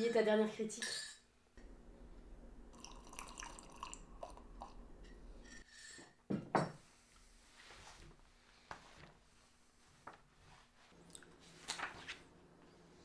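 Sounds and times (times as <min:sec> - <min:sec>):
low steady hum: 0:00.8 - 0:05.6.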